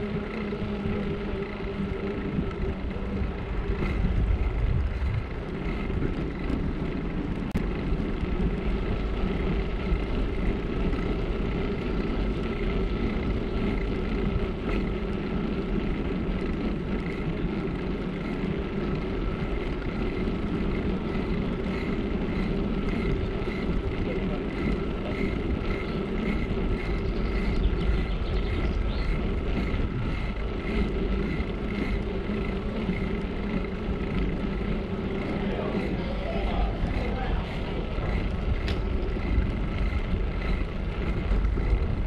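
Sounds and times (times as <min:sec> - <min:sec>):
bicycle tyres rolling on pavement: 0:00.0 - 0:42.0
small rattling ticks: 0:00.0 - 0:42.0
wind noise on microphone: 0:00.0 - 0:42.0.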